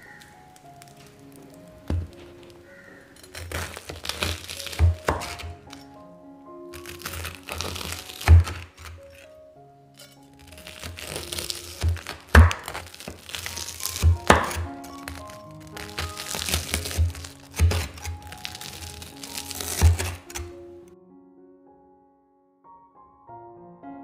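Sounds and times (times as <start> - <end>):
knife crunching through toast: 0.0 - 5.9, 6.8 - 9.4, 10.0 - 20.6
soft piano music: 0.0 - 24.0.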